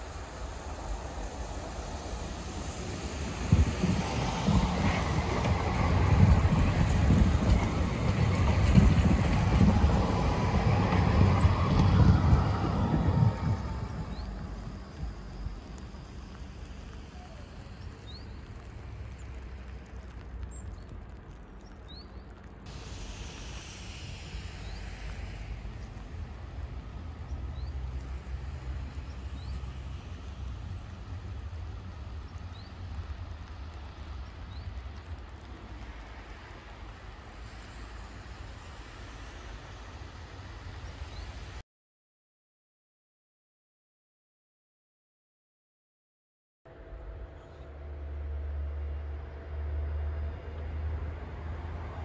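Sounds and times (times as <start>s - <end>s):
tram wheels rumbling: 0.0s - 41.6s, 46.7s - 52.0s
wind buffeting microphone: 0.0s - 41.6s.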